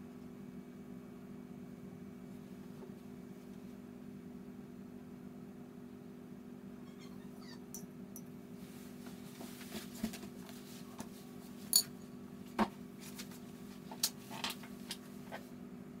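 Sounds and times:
paintbrush clinking on ceramic palette: 11.8 - 12.0.

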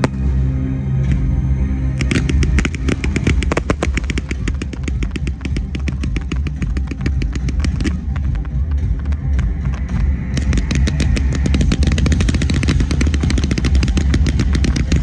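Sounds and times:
steady low rumble: 0.0 - 15.0
fireworks cracking: 2.0 - 15.0.

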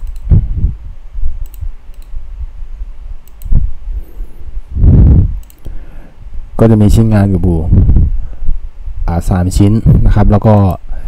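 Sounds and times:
computer mouse clicking: 0.0 - 0.3, 1.4 - 2.2, 3.2 - 3.6, 5.4 - 5.7
steady low rumble: 0.0 - 11.0.

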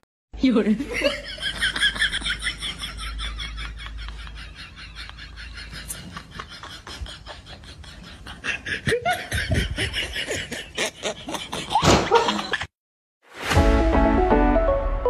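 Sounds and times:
person laughing in bursts: 0.8 - 12.7.

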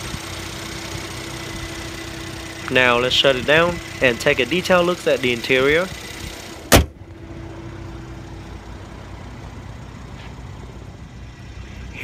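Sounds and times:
steady low rumble: 0.0 - 12.0
car hood slamming shut: 6.6 - 7.0.

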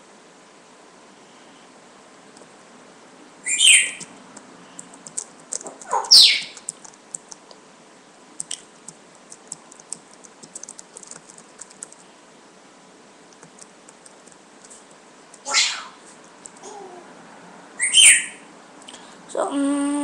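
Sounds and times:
high chirps: 3.4 - 4.1, 5.9 - 6.6, 17.8 - 18.5
typing on computer keyboard: 4.8 - 7.5, 8.4 - 12.0, 13.4 - 14.4.

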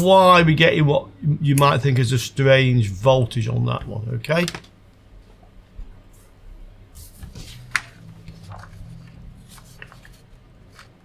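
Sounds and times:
paper rustling and crinkling: 7.0 - 11.0.

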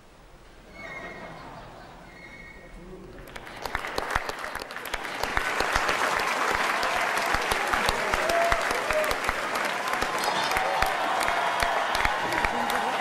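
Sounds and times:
audience applauding: 3.1 - 13.0.

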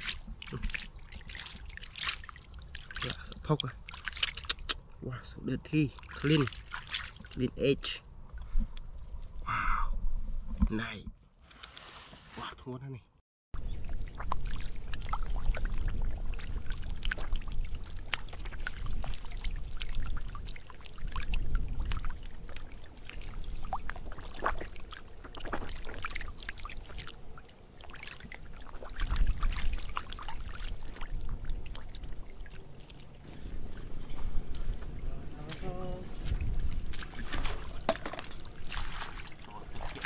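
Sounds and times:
fish splashing in water: 0.0 - 3.2, 3.8 - 4.7, 6.0 - 7.4, 13.6 - 33.9, 36.4 - 40.0.

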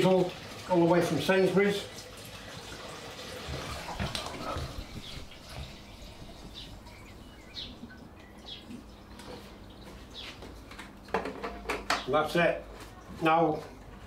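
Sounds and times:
liquid glugging through funnel: 2.4 - 7.2.

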